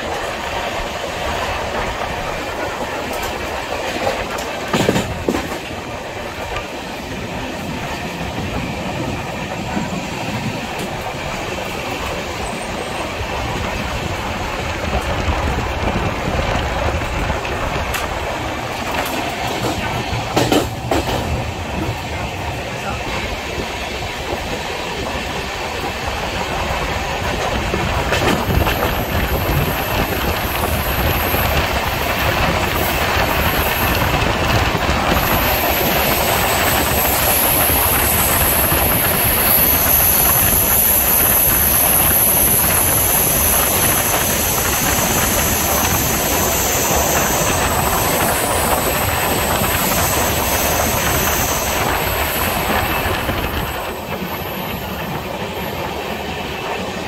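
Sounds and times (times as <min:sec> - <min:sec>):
train wheels clattering on rails: 0:00.0 - 0:57.0.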